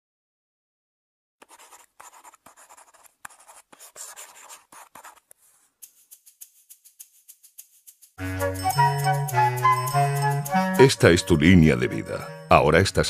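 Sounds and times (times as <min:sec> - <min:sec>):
marker pen writing on paper: 0:01.4 - 0:08.2.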